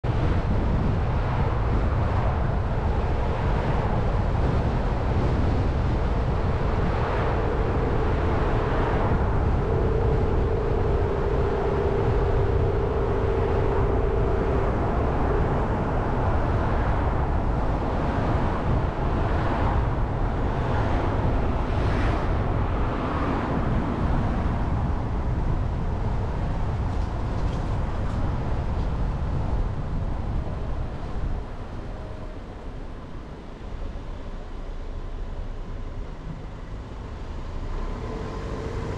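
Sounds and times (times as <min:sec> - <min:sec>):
road noise rumble: 0:00.0 - 0:38.9
steady hum: 0:06.0 - 0:19.2.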